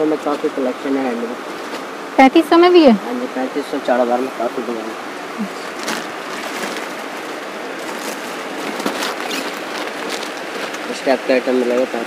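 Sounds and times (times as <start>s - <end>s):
plastic garment covers crackling: 5.4s - 12.0s.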